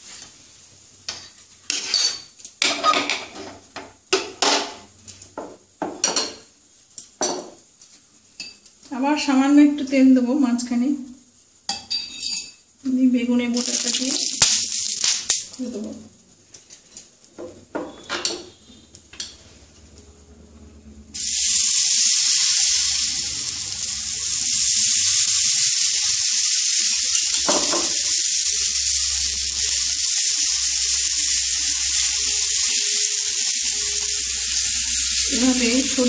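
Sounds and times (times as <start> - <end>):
batter sizzling in a pan: 11.6 - 15.8, 21.2 - 36.0.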